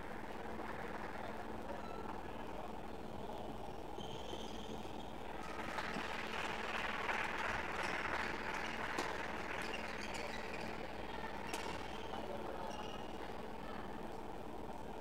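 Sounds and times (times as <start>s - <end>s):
audience applauding: 5.4s - 10.7s.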